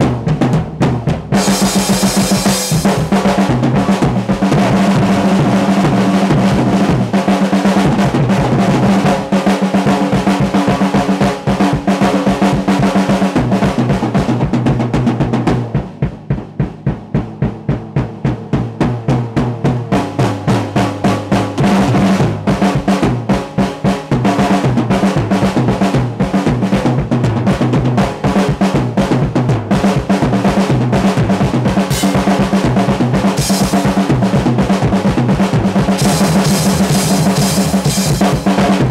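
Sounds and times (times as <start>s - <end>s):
drum kit solo: 0.0s - 38.9s
cymbal crashes: 1.4s - 3.2s, 31.9s - 32.7s, 33.3s - 34.2s, 36.0s - 38.9s.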